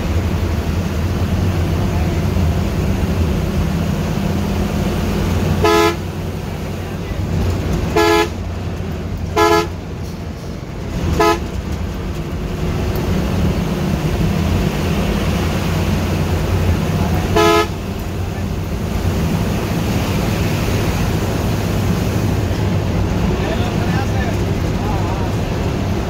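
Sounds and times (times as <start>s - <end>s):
bus engine drone: 0.0s - 26.0s
road noise: 0.0s - 26.0s
bus horn blasts: 5.2s - 6.5s, 7.8s - 8.6s, 9.2s - 10.0s, 11.0s - 11.7s, 17.0s - 18.2s.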